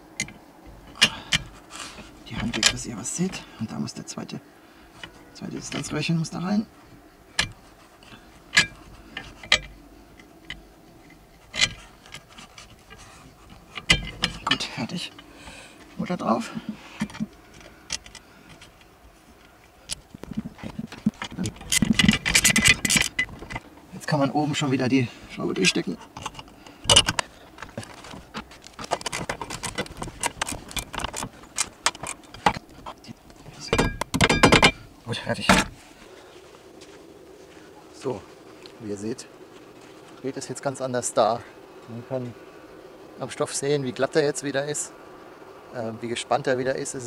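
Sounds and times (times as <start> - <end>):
metal tools clicking on bolt: 20.9 - 23.6.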